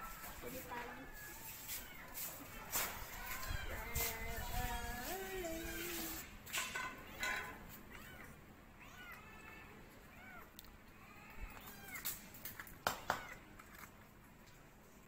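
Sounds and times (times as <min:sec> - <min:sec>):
cat meowing: 0:07.9 - 0:12.2, 0:12.9 - 0:13.5.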